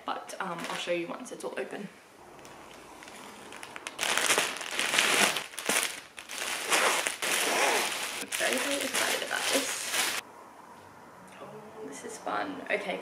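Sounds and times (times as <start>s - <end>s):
plastic packaging crinkling: 2.3s - 10.2s.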